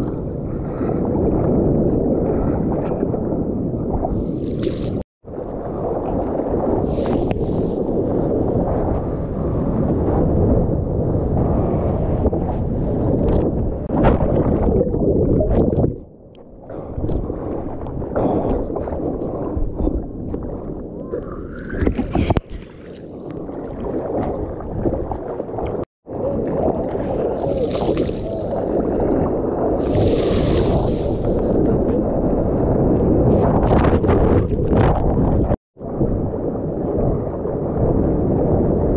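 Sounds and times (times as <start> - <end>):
wind buffeting microphone: 0.0 - 38.9
surf rushing and splashing: 23.6 - 31.7.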